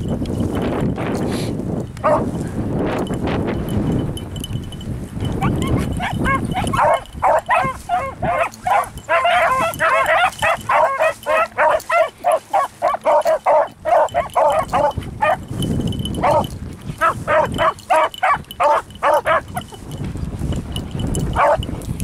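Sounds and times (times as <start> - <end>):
wind rumbling on microphone: 0.0 - 22.0
dogs baying and yelping: 2.0 - 2.4, 5.2 - 20.0, 21.1 - 21.8.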